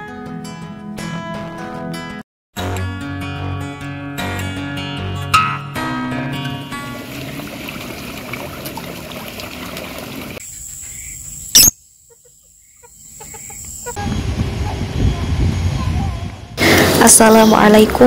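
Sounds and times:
guitar tune: 0.0 - 7.1
water noise: 6.7 - 10.4
birds: 10.4 - 14.0
insects: 10.4 - 14.0.

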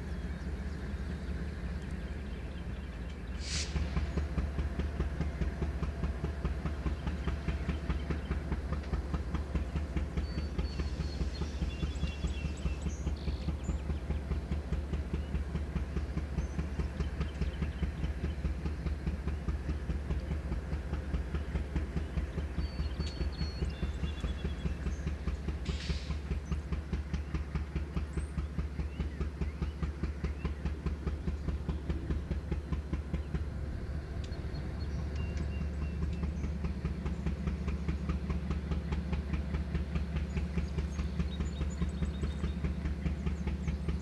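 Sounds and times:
freight train rumbling on rails: 0.0 - 44.0
short hiss: 3.3 - 4.1, 25.7 - 26.2.

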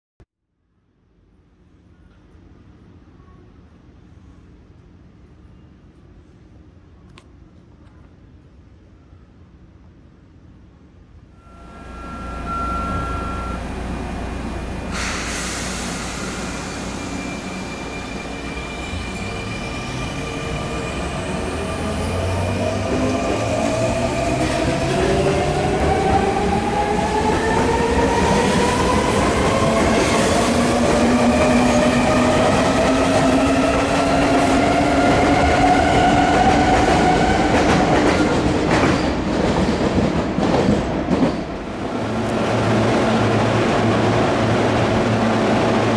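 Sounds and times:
train wheels rumbling: 11.4 - 45.9.

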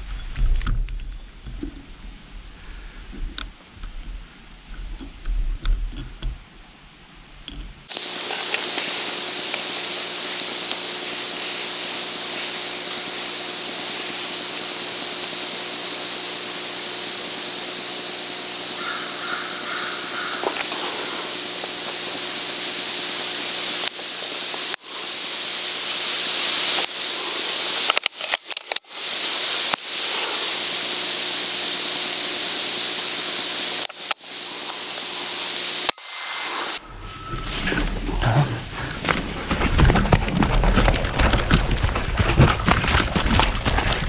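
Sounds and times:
insects chirring: 0.0 - 6.5, 7.2 - 44.0
short bird calls: 18.8 - 21.4.

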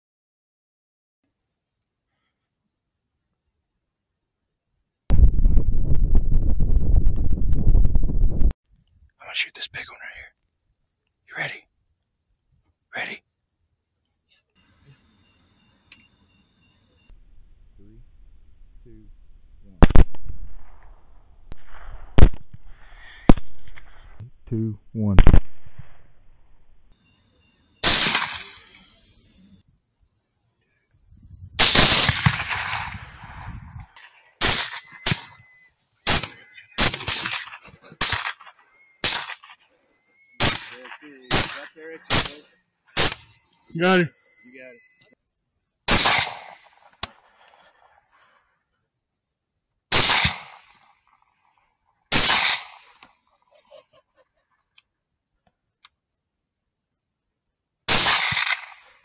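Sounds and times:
rifle shots with echo: 19.8 - 22.6, 27.8 - 28.6, 31.6 - 33.3, 36.1 - 39.6, 40.4 - 42.4, 45.9 - 46.8, 49.9 - 50.8, 52.1 - 53.0, 57.9 - 59.0.

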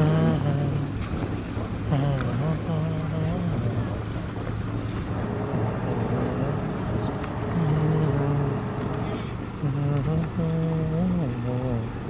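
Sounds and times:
motorboat engines humming: 0.0 - 12.0.

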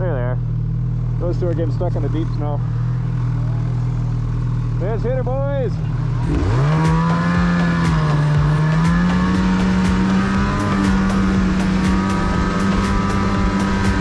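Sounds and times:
snowmobile engine accelerating: 5.9 - 14.0.

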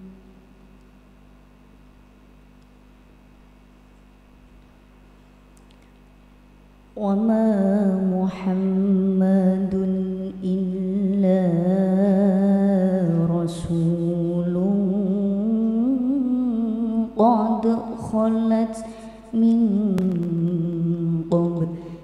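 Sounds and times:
woman reciting melodically: 7.0 - 22.0.

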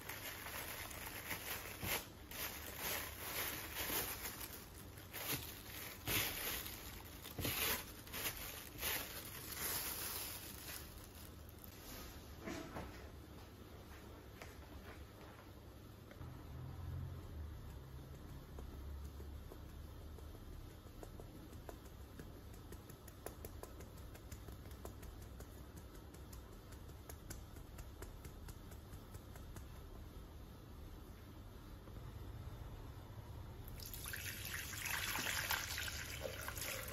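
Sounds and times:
plastic gloves crinkling: 0.0 - 12.4, 33.7 - 36.9.

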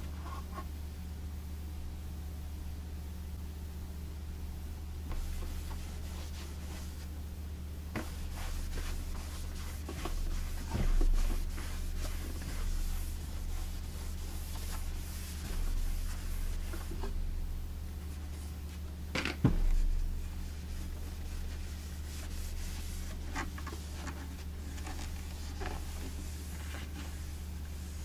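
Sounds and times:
steady low hum: 0.0 - 28.0
cloth rubbing on wooden cabinet: 5.0 - 7.2, 7.9 - 17.4, 18.0 - 28.0
dull thump: 19.1 - 20.2.

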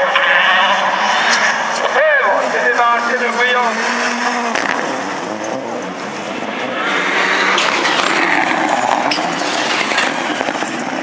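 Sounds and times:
race car engine running hard: 0.0 - 11.0
tyres on loose dirt: 3.4 - 11.0.

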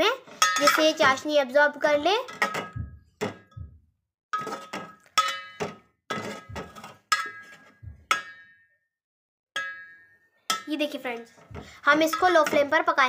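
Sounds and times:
metal spoon clinking on pot: 0.3 - 1.0, 4.4 - 8.6, 9.6 - 10.8.

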